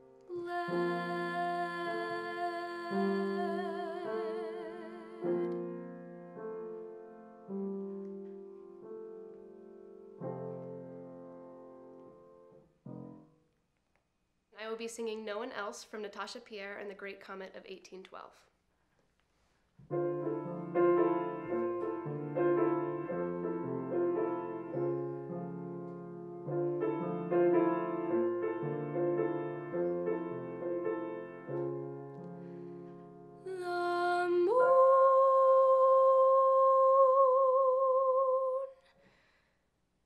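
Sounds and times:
slow piano chords: 0.0s - 13.2s, 19.9s - 38.6s
woman singing: 0.3s - 5.7s, 33.4s - 38.9s.

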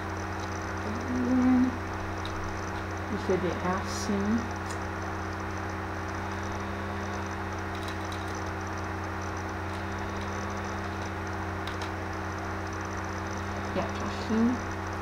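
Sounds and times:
faint ticks: 0.0s - 3.1s
low electrical hum: 0.0s - 15.0s.

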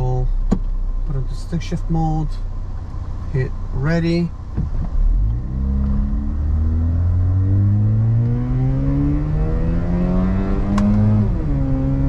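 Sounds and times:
rotary engine revving: 4.6s - 12.0s.

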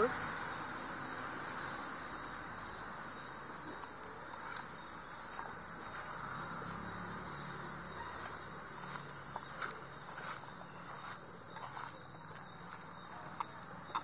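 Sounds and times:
steady hiss: 0.0s - 9.3s
faint clicks of food pieces: 3.2s - 6.2s, 8.2s - 14.0s.

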